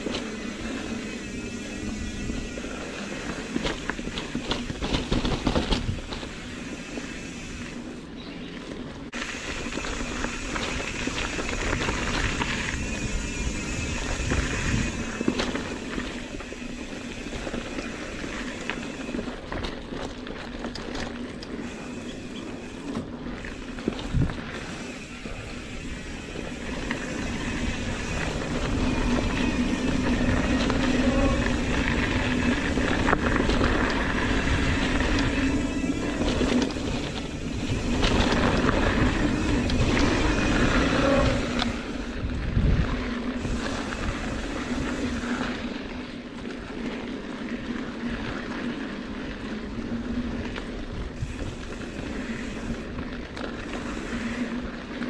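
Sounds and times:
bike tyres on dirt: 0:00.0 - 0:55.0
bike knocking over bumps: 0:03.5 - 0:06.4
wind on microphone: 0:10.0 - 0:16.3, 0:23.4 - 0:46.0.

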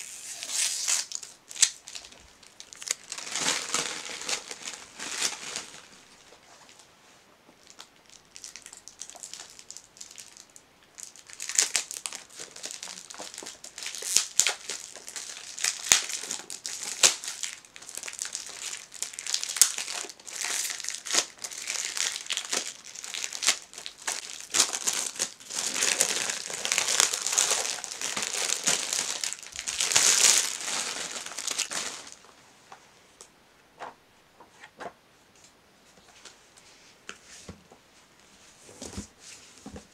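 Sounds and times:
plastic wrapping crinkling: 0:00.0 - 0:06.9, 0:07.6 - 0:32.4.

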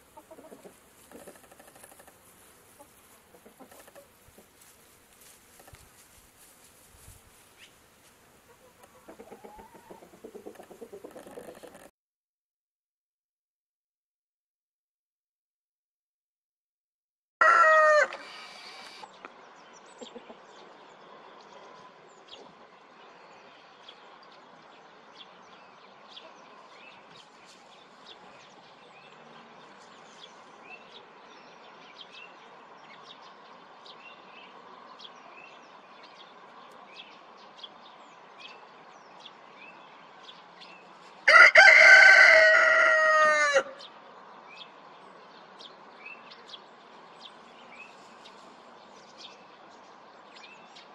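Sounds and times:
rooster crowing: 0:17.4 - 0:18.9, 0:41.2 - 0:43.9.

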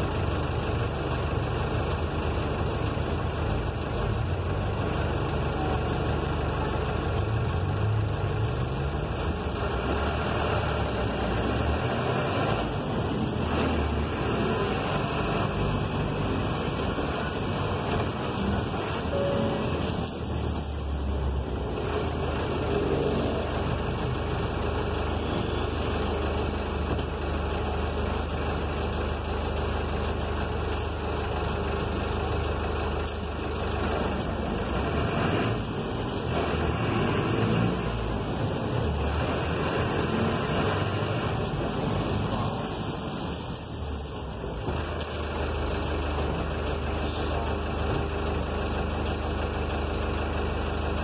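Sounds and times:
bus engine running: 0:00.0 - 0:51.0
road noise: 0:00.0 - 0:51.0.

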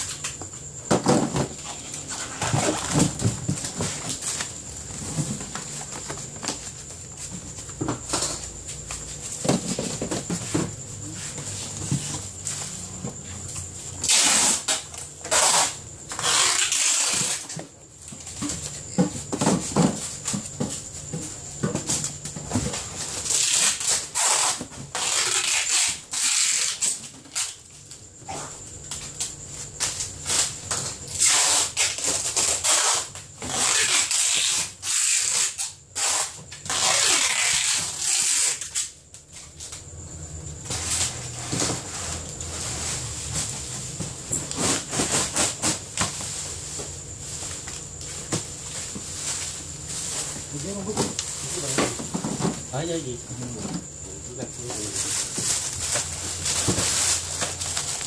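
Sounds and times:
plastic packing rustling: 0:53.5 - 0:58.0.

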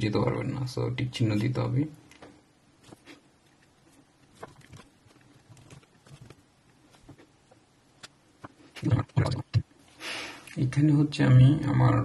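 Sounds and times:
laptop keyboard typing: 0:04.3 - 0:06.4.

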